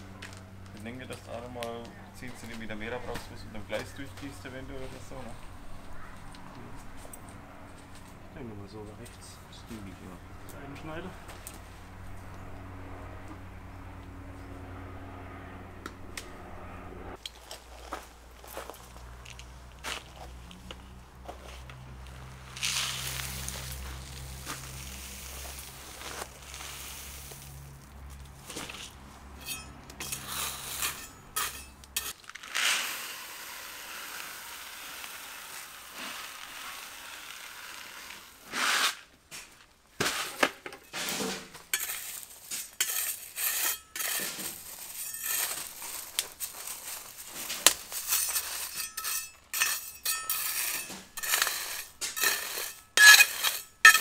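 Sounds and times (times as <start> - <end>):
metal tool scraping gravel: 0.2 - 5.5, 17.2 - 39.1, 40.0 - 54.0.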